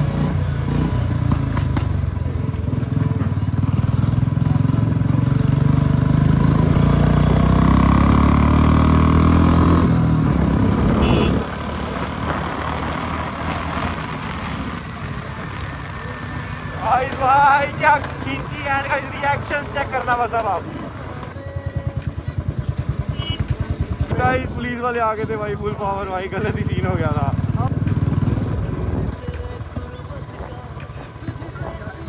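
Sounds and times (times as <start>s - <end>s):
motorcycle engine revving hard: 0.0s - 1.9s, 2.7s - 14.8s, 26.4s - 29.2s.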